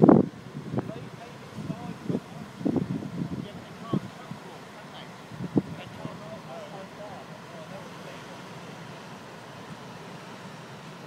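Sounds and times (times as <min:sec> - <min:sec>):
wind on microphone: 0:00.0 - 0:04.5, 0:05.2 - 0:06.4
surf breaking on shore: 0:00.0 - 0:11.0.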